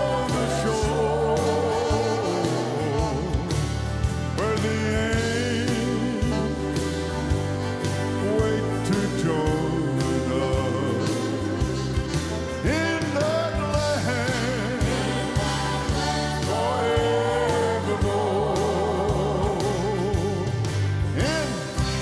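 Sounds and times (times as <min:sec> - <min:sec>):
instrumental accompaniment: 0:00.0 - 0:22.0
man and women singing a hymn: 0:00.0 - 0:22.0.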